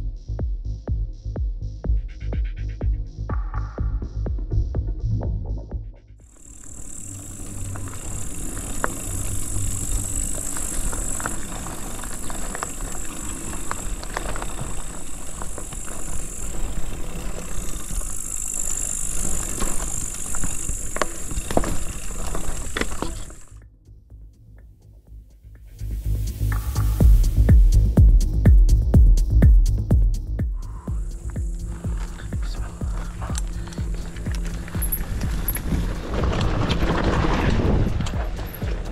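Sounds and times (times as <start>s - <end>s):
bike tyres rolling over gravel: 6.3s - 23.6s, 30.6s - 38.9s
bike chain and frame rattling: 6.4s - 23.6s, 31.0s - 38.9s.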